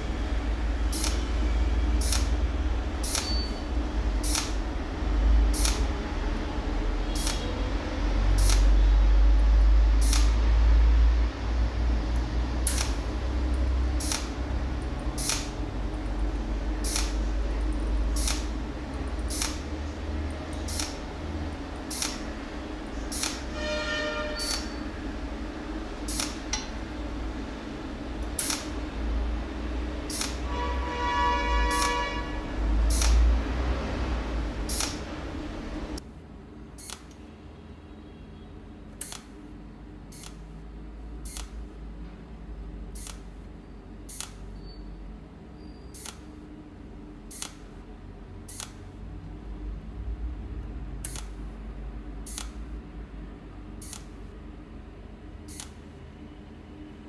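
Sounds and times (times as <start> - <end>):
welding machine low hum: 0.0 - 37.3, 38.8 - 57.0
welder spot-weld snaps: 4.2 - 4.6, 8.4 - 8.7, 10.0 - 10.4, 12.7 - 13.0, 14.0 - 14.3, 15.2 - 15.5, 16.8 - 17.2, 18.2 - 18.5, 19.3 - 19.6, 20.6 - 21.0, 21.9 - 22.2, 23.1 - 23.4, 26.1 - 26.8, 28.4 - 28.7, 30.1 - 30.4, 32.9 - 33.2, 34.7 - 35.0, 39.0 - 39.3, 44.1 - 44.4, 46.0 - 46.2, 47.3 - 47.6, 48.5 - 48.8, 51.0 - 51.4, 52.3 - 52.6, 53.8 - 54.1.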